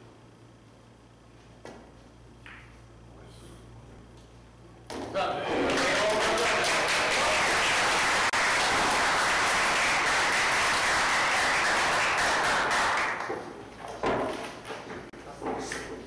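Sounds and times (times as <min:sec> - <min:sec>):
audience applauding: 0:05.5 - 0:13.3.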